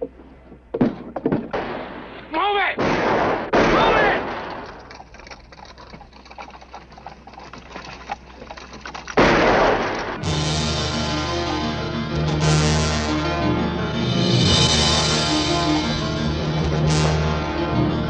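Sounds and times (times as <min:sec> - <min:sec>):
sharp cracks of gunfire: 0:00.8 - 0:04.9, 0:09.2 - 0:10.4
loud gunshot with whine: 0:02.8 - 0:04.5
film score music: 0:09.2 - 0:18.0.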